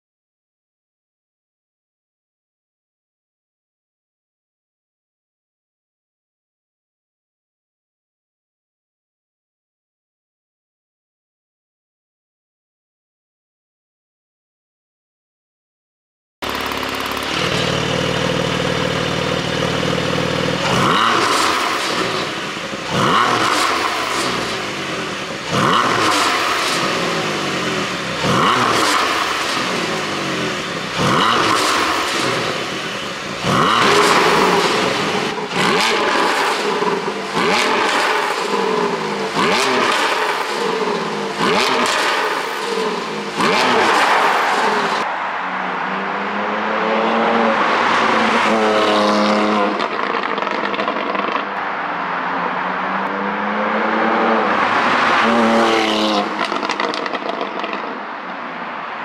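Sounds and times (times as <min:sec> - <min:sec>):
sports car engine idling and revving: 0:16.4 - 0:58.3
exhaust pops and crackles: 0:49.8 - 0:51.6, 0:56.4 - 0:57.9.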